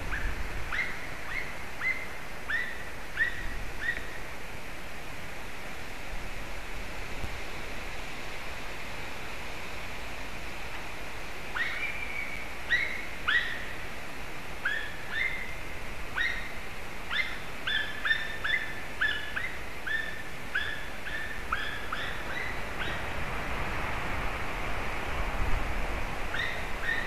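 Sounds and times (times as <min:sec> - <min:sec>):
steady background hiss: 0:00.0 - 0:27.0
eagle calling: 0:00.1 - 0:04.2, 0:11.5 - 0:13.8, 0:14.6 - 0:23.0, 0:26.3 - 0:27.0.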